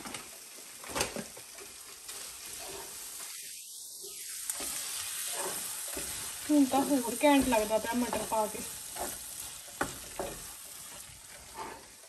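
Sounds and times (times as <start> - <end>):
peas sizzling in a frying pan: 0.0 - 12.0
wooden spatula stirring: 4.6 - 12.0.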